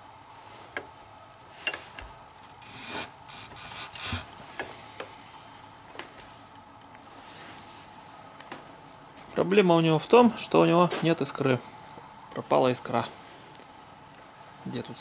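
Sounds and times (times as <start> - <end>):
rustling noise: 6.1 - 7.9.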